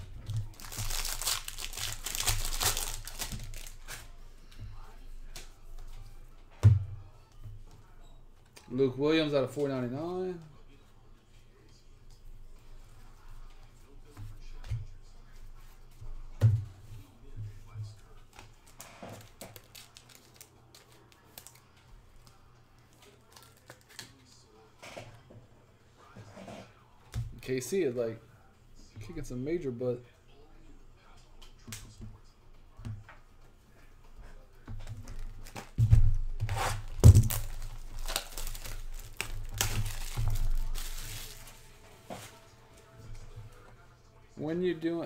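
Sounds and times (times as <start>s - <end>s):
card packs clicking and crinkling: 0.4s - 4.0s, 18.4s - 24.2s, 36.8s - 41.6s.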